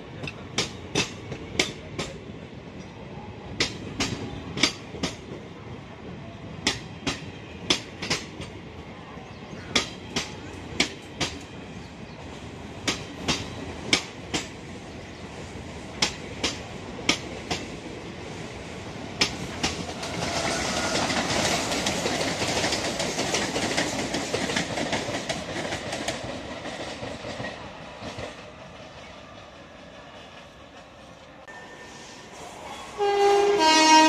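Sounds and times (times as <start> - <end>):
passing electric train rumble and hiss: 0.0 - 34.0
train wheels clacking over rail joints: 0.2 - 2.2, 3.6 - 5.4, 6.6 - 8.6, 12.8 - 14.6, 19.2 - 29.1.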